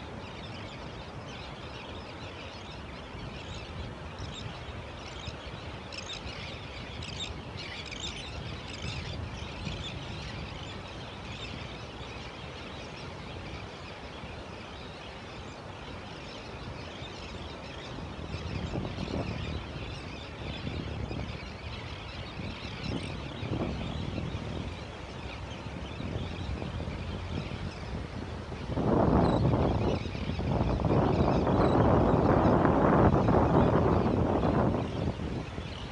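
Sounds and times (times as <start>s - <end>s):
terns and gulls calling: 0.0s - 35.9s.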